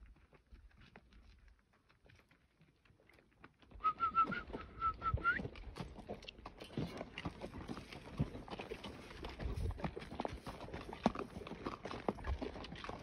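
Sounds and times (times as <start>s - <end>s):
hooves on gravelly ground: 0.0s - 13.0s
whistled notes: 3.8s - 5.4s.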